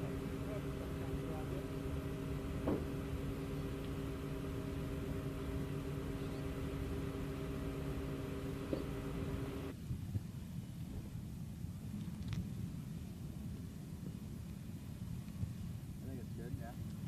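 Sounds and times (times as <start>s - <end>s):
machine hum: 0.0s - 9.7s.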